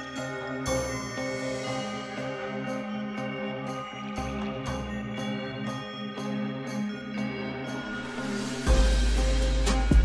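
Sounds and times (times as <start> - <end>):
steady beat: 8.2 - 10.0.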